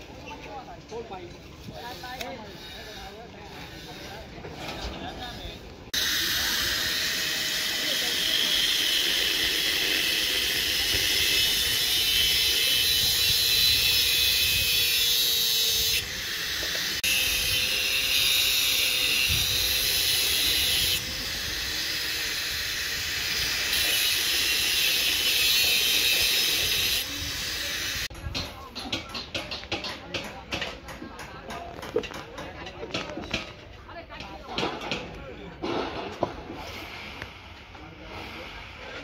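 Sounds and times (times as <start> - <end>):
angle grinder cutting metal pipe: 6.0 - 28.1.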